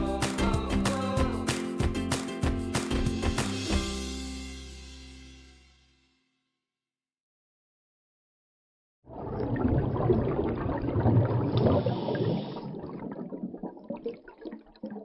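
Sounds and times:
rushing water: 9.1 - 15.0
water gurgling: 9.1 - 15.0.

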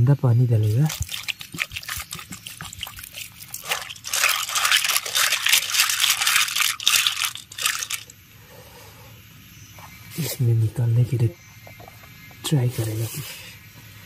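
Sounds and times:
snail shells clicking: 0.6 - 8.1
water splashing: 0.6 - 8.1.

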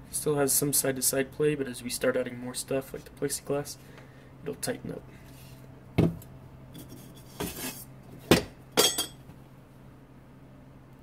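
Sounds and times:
metal frame clinking and knocking: 8.8 - 9.2.

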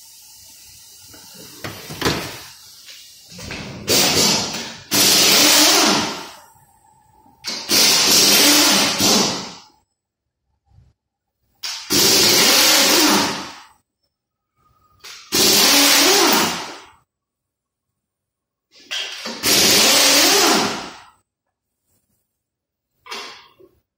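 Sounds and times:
pneumatic wrench running: 3.9 - 6.4, 7.4 - 9.6, 11.6 - 13.6, 15.1 - 16.8, 19.2 - 21.0.

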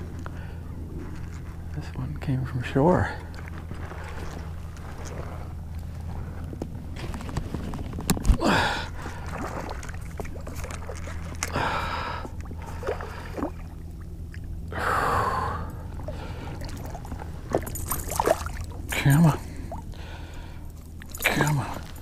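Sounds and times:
steady low hum: 0.0 - 22.0
person breathing hard: 8.4 - 9.3, 11.5 - 13.4, 14.7 - 16.7, 19.4 - 20.7.

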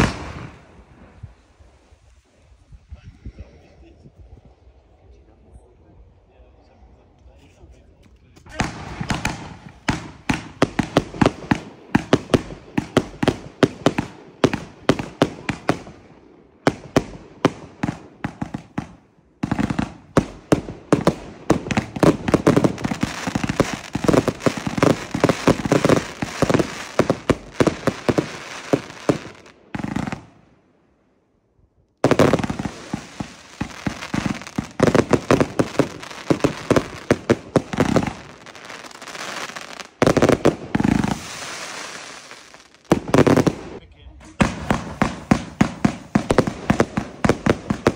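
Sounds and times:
firework launch pops and bangs: 0.0 - 1.3, 8.4 - 16.0, 32.0 - 47.9.

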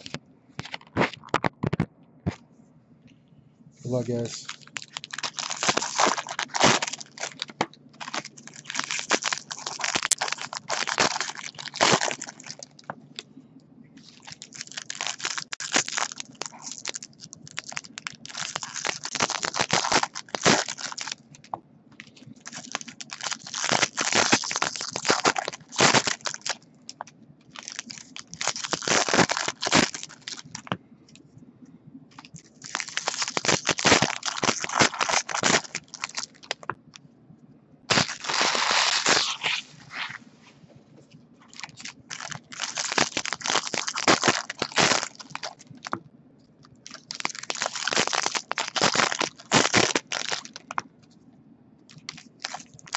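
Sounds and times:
foil wrappers crinkling and tearing: 4.0 - 13.0, 14.0 - 30.8, 32.2 - 36.8, 37.9 - 40.2, 41.4 - 46.0, 46.8 - 50.8, 51.9 - 52.9.

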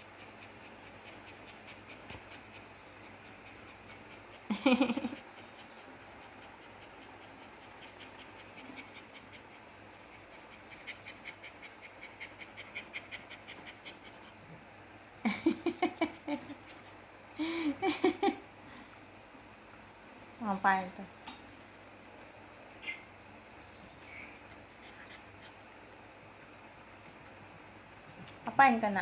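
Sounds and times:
dog panting: 0.0 - 29.0.

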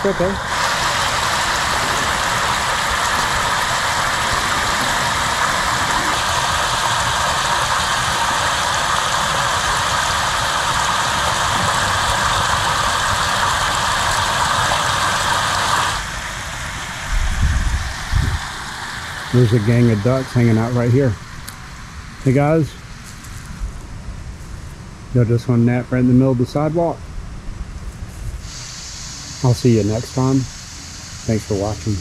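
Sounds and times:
water rushing over weir: 0.0 - 21.0.

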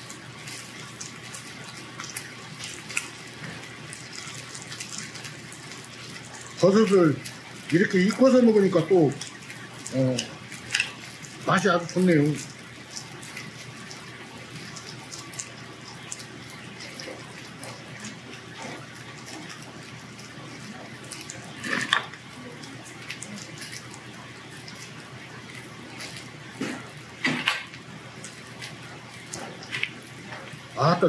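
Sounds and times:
eating noises: 0.0 - 31.0
meat sizzling on a grill plate: 0.0 - 31.0.

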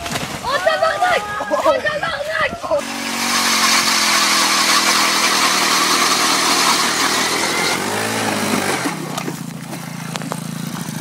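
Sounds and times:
ice auger engine running: 2.7 - 11.0.

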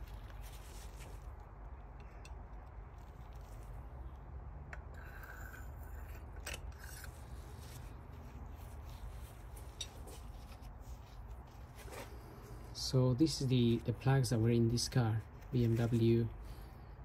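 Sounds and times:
rubbing and scraping of tools: 4.8 - 12.7.

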